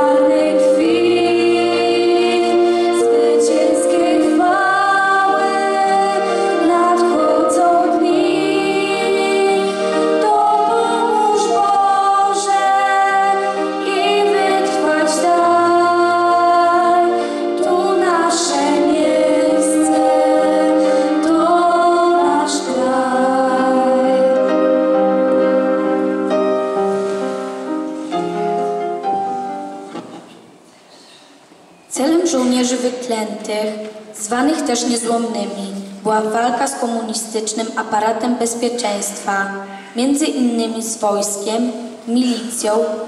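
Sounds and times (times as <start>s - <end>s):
girls singing into microphones: 0.0s - 26.0s.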